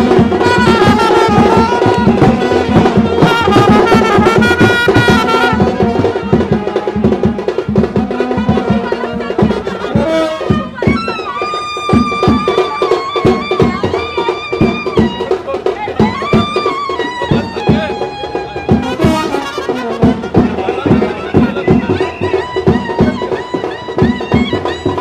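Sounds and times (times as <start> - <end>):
long held wind instrument note: 0.0 - 15.2
fast drum beat: 0.0 - 25.0
lively brass band music: 0.0 - 25.0.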